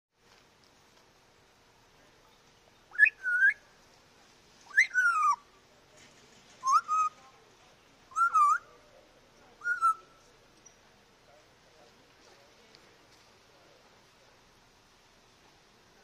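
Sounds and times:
parrot whistling: 2.9s - 3.6s, 4.7s - 5.4s, 6.6s - 7.2s, 8.1s - 8.7s, 9.6s - 10.0s.

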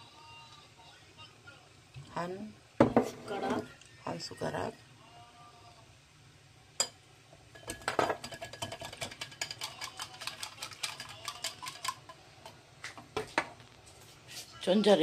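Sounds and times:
whisk clicking against glass bowl: 7.6s - 12.2s.

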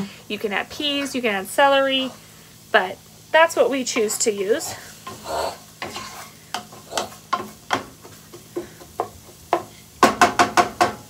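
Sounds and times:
oil sizzling: 0.0s - 11.0s
spoon scraping frying pan: 0.6s - 2.2s, 3.8s - 9.8s.

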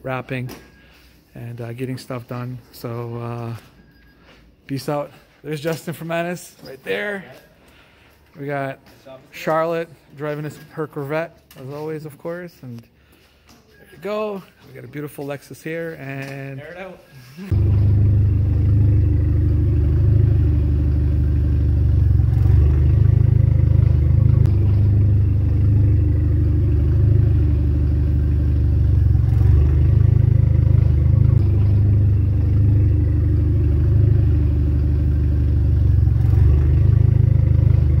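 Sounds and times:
machine humming: 17.4s - 38.0s.

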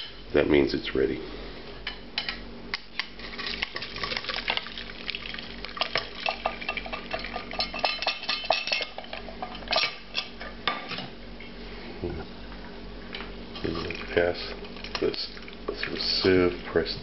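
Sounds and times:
sauce pouring into a sieve: 3.2s - 7.5s.

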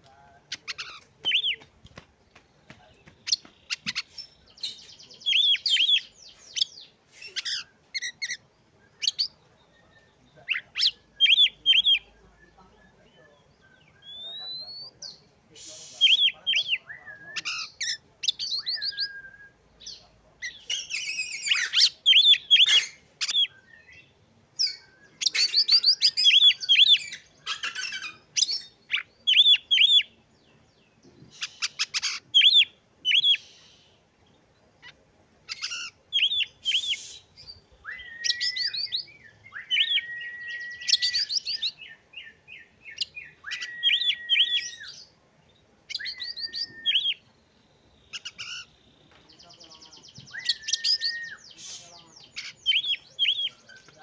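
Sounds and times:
bird singing high chirps: 2.7s - 54.0s
long level bird whistles: 18.4s - 19.6s, 36.2s - 41.9s, 42.9s - 45.1s, 45.9s - 47.2s, 50.3s - 51.9s.

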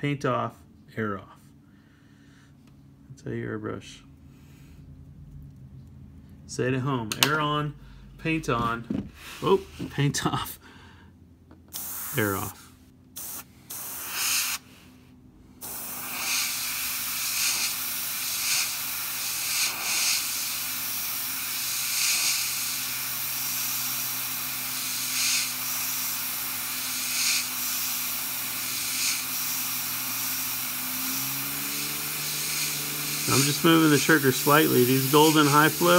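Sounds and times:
airbrush spraying air: 11.7s - 14.9s, 15.5s - 35.9s.

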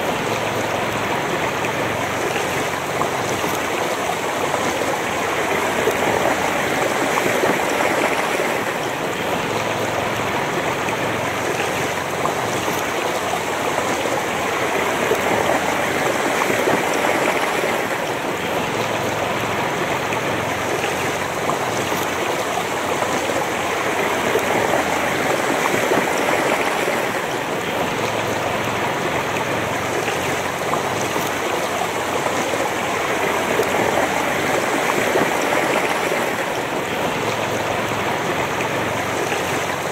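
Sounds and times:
river rushing over stones: 0.0s - 39.9s.

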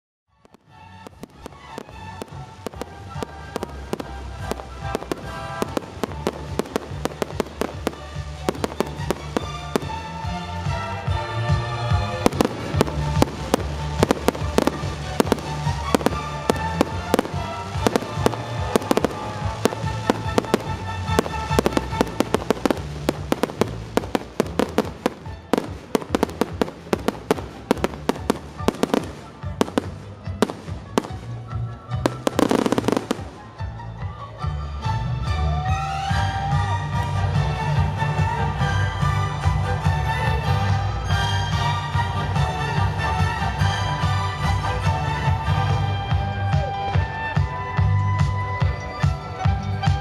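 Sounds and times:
music playing: 0.3s - 50.0s
fireworks bangs: 0.4s - 33.6s.

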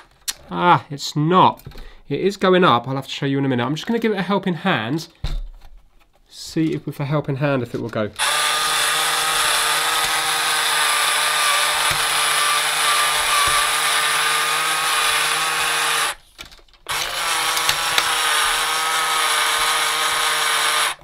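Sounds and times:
small electric motor whine: 8.2s - 16.2s, 16.9s - 21.0s.

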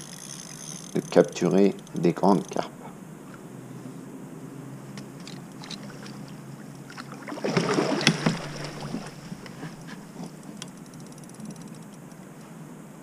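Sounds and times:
fish splashing and thrashing: 5.2s - 11.8s.

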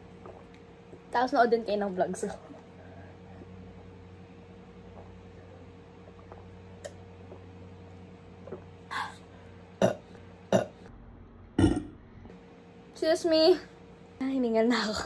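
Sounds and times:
woman burping: 9.8s - 10.8s, 11.6s - 12.0s.

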